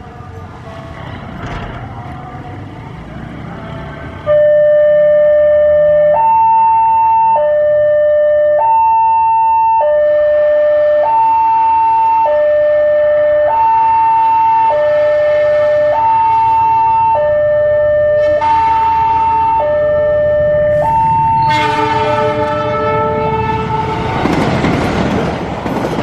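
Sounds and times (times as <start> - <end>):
diesel locomotive rumble: 0.0 - 6.2, 14.8 - 26.0
level crossing two-tone alarm: 4.3 - 22.0.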